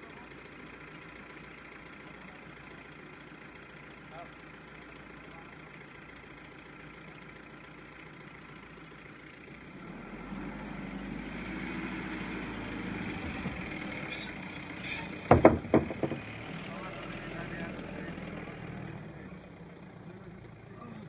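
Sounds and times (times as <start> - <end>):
car engine running: 0.0 - 21.0
loud knocks: 13.2 - 13.8, 15.0 - 16.4.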